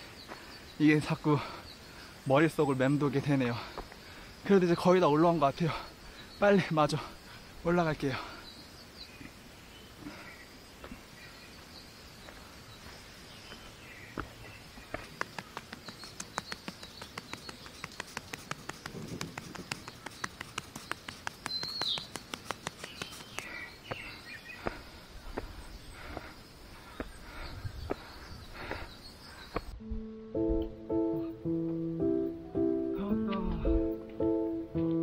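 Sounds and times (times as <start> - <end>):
bird chirping: 0.0 - 34.7
footsteps on timber steps: 11.6 - 29.8.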